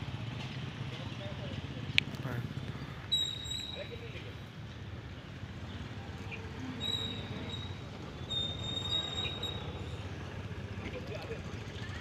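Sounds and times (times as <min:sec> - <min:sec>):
high-pitched wheel squeal: 0:03.1 - 0:04.0, 0:06.7 - 0:10.1.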